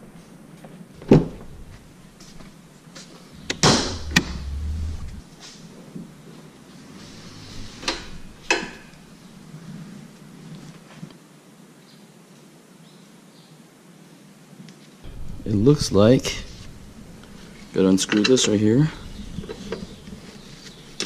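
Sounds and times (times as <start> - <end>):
short low rumble: 1.3 - 2.1, 3.3 - 6.2, 15.0 - 20.2.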